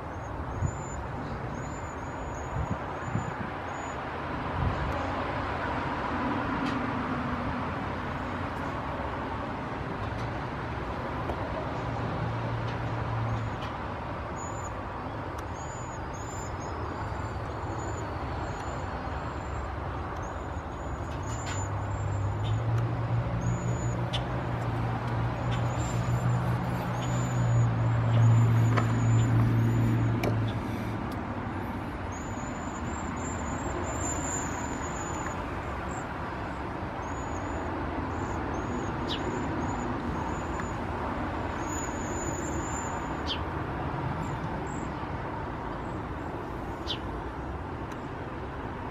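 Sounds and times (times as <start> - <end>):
road traffic drone: 0.0 - 48.9
vehicle passing: 21.6 - 36.6
high-pitched bird calls: 23.3 - 30.8, 32.0 - 36.1, 37.0 - 40.8.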